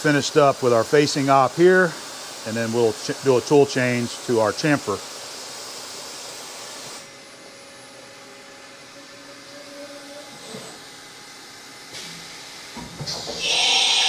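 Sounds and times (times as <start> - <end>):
milling machine hiss: 0.0 - 14.0
spindle whir: 8.8 - 11.0.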